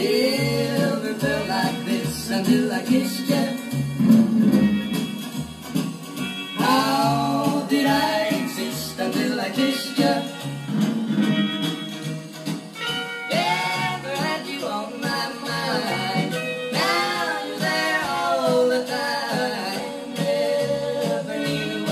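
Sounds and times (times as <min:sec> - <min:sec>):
person singing: 0:00.0 - 0:03.7, 0:06.6 - 0:10.4, 0:13.3 - 0:21.9
guitar accompaniment: 0:00.0 - 0:21.9
record player playing a song: 0:00.0 - 0:21.9.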